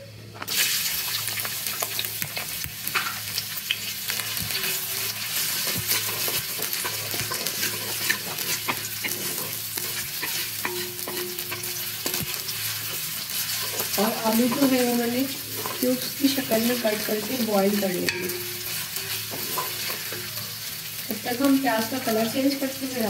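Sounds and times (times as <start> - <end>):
onions sizzling in hot fat: 0.3 - 23.0
wooden spatula scraping pot: 4.2 - 20.5.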